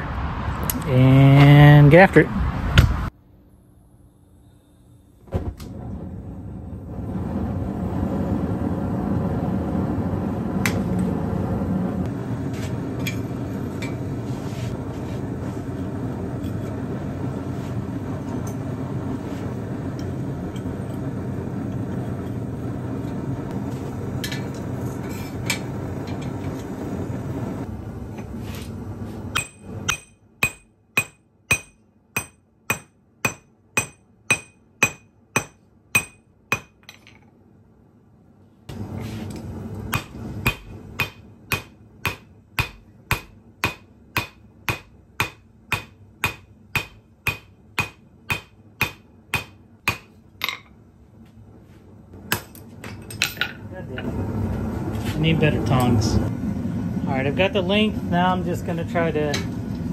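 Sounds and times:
gas forge burner rushing: 0:05.2 - 0:30.0, 0:38.7 - 0:43.8, 0:52.1 - 0:59.9
hammer striking hot metal on anvil: 0:29.3 - 0:37.0, 0:39.9 - 0:50.6.

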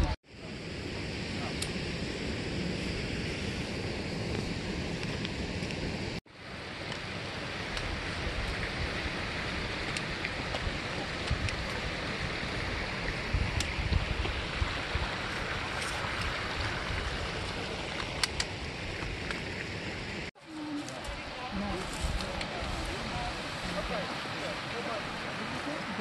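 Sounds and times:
wind buffeting microphone: 0:07.2 - 0:19.8, 0:21.0 - 0:26.0
river flowing over rapids: 0:19.6 - 0:26.0.

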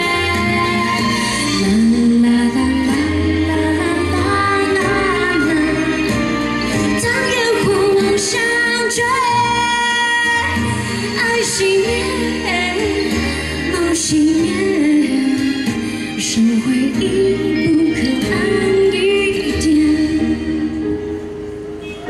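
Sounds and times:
woman singing pop song: 0:00.0 - 0:21.1
instrumental accompaniment: 0:00.0 - 0:22.0.

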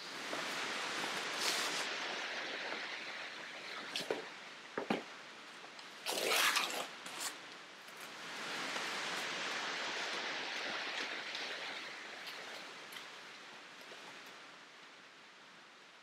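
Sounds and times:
scraping rustle of box: 0:01.3 - 0:01.9, 0:06.0 - 0:07.4
foam packing sheet rustling: 0:06.0 - 0:07.4.

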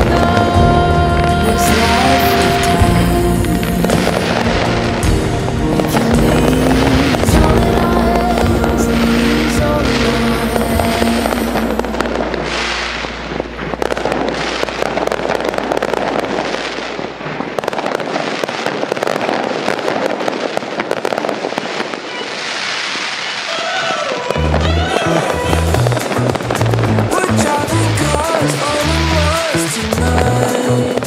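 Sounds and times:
background music: 0:00.0 - 0:16.9, 0:24.3 - 0:31.0
fireworks popping and crackling: 0:00.0 - 0:31.0.

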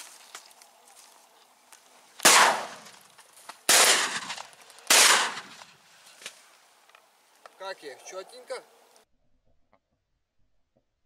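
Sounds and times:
shotgun shots: 0:02.2 - 0:02.9, 0:03.7 - 0:05.7.

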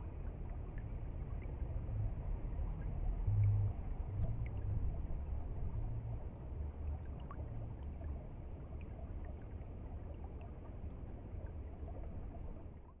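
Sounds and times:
deep low rumble: 0:01.8 - 0:07.8.

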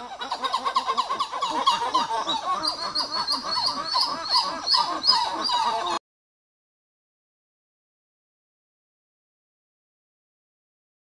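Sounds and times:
titi monkeys calling: 0:00.0 - 0:06.0.

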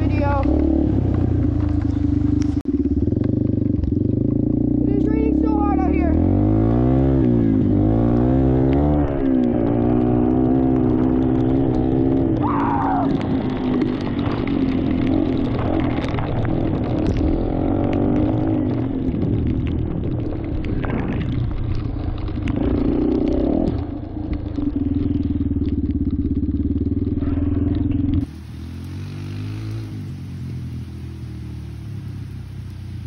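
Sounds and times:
dirt bike engine revving: 0:00.0 - 0:16.1, 0:24.7 - 0:33.0
distant engine revving: 0:00.0 - 0:19.8, 0:26.2 - 0:33.0
steady hiss: 0:28.3 - 0:33.0.

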